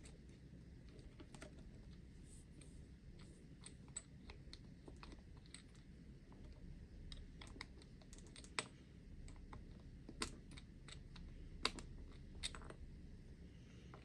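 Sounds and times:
small plastic and metal clicks: 0:07.0 - 0:12.8.

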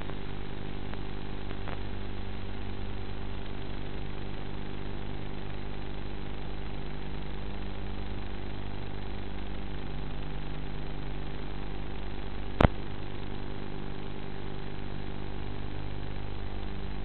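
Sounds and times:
sharp click: 0:12.6 - 0:12.8.

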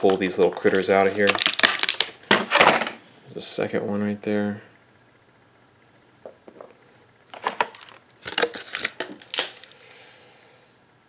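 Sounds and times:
plastic toys and packaging clicking: 0:00.0 - 0:03.0, 0:07.3 - 0:10.0.

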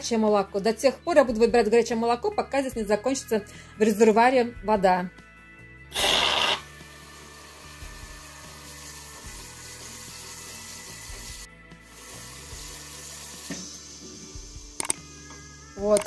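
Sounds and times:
faint background music: 0:00.0 - 0:16.0
water hissing from spout: 0:05.9 - 0:14.5
milk frother steam hissing: 0:05.9 - 0:14.8.

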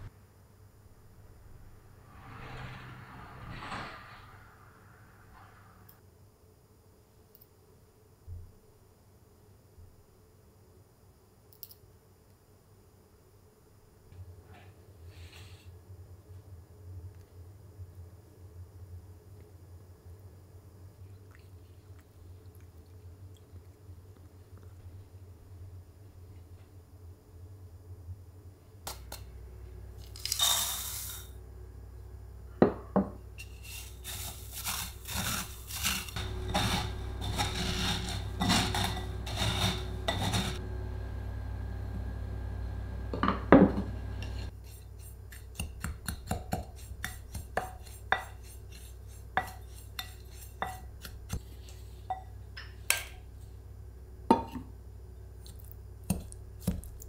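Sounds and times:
rustling and scraping: 0:33.4 - 0:40.6.

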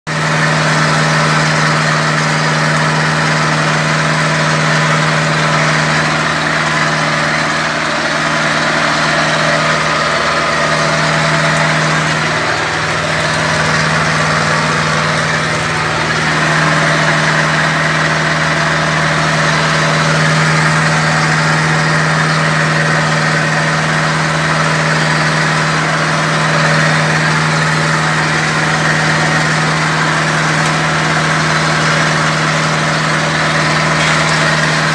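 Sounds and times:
tractor diesel engine running: 0:00.0 - 0:34.9.

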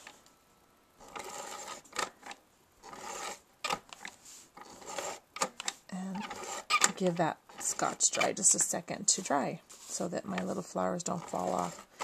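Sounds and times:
adhesive tape rasping: 0:04.6 - 0:06.9.

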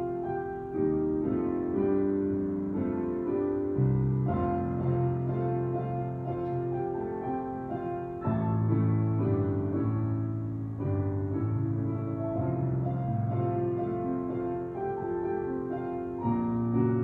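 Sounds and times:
solo piano music: 0:00.0 - 0:17.0.

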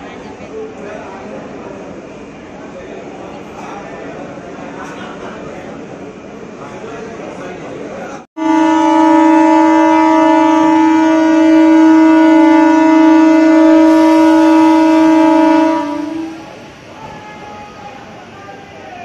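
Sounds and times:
train horn long blast: 0:08.4 - 0:16.6.

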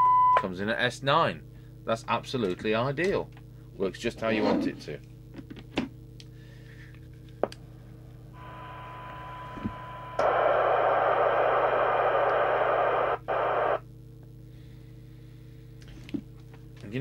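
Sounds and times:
low hum: 0:06.1 - 0:16.8
faint test tone: 0:08.4 - 0:10.3
radio receiver hiss: 0:08.4 - 0:13.8.

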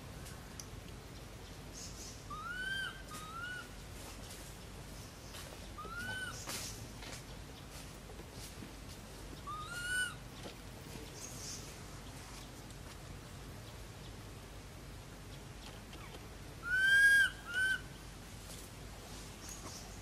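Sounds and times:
whistle-like animal calls: 0:16.6 - 0:17.8.

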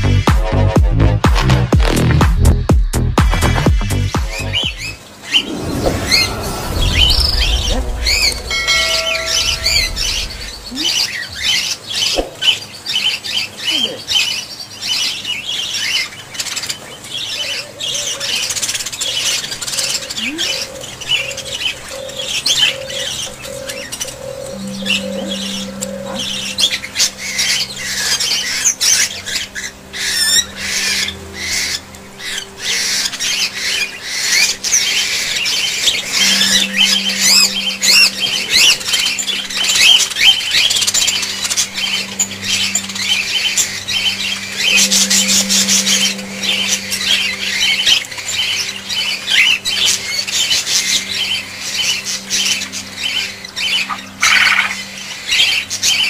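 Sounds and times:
low hum: 0:04.4 - 0:11.6, 0:20.2 - 0:54.2
budgerigars chattering and squawking: 0:08.9 - 0:56.0.

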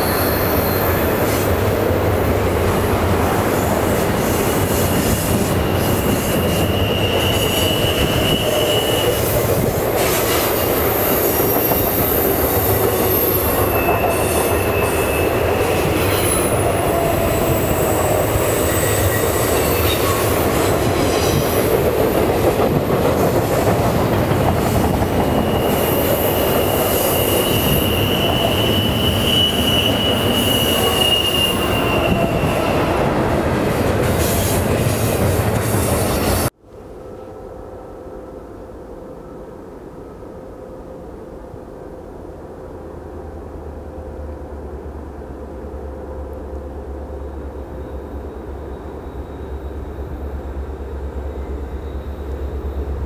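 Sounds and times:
train wheels rumbling on rail: 0:00.0 - 0:37.4
wheel flange squeal: 0:04.2 - 0:09.4, 0:10.2 - 0:20.4, 0:25.2 - 0:32.9.

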